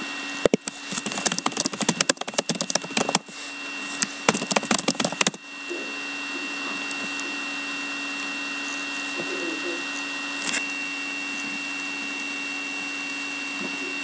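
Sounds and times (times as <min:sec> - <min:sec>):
electrical hum with high whine: 0:00.0 - 0:14.0
typing on laptop keyboard: 0:00.6 - 0:03.2, 0:04.3 - 0:05.4.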